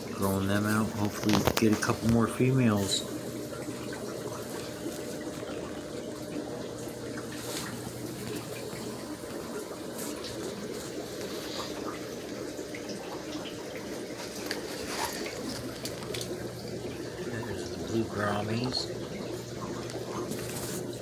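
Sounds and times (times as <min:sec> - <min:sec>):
faint steady hum: 0:00.0 - 0:21.0
water running and trickling: 0:00.0 - 0:21.0.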